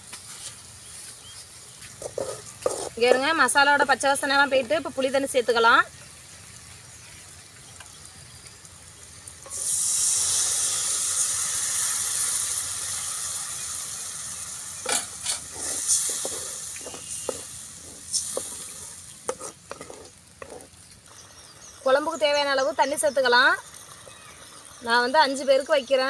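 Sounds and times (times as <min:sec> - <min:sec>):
loud sizzle in pan: 0:00.0 - 0:26.0
wooden spatula scraping metal pan: 0:02.0 - 0:03.3, 0:14.9 - 0:20.8.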